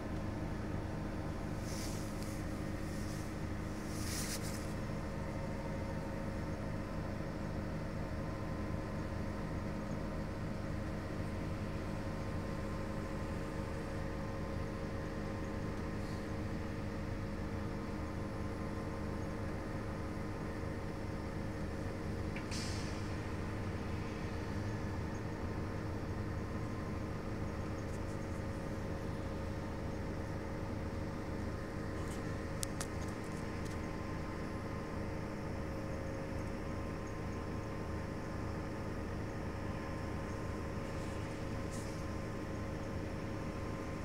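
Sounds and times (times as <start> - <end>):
bus engine idling hum: 0.0 - 44.0
air hiss: 22.5 - 23.1.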